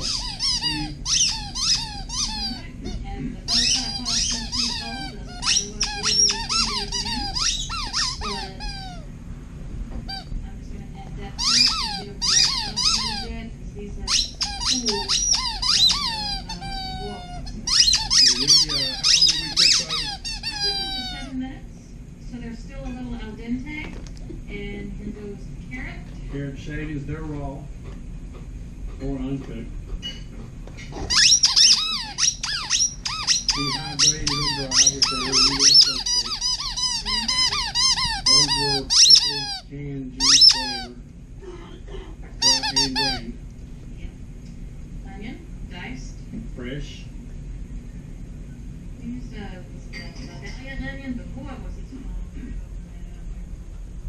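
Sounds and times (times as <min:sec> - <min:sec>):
dog chewing squeaky toy: 0:00.0 - 0:09.1, 0:11.4 - 0:13.3, 0:14.1 - 0:21.3, 0:31.0 - 0:40.9, 0:42.4 - 0:43.2.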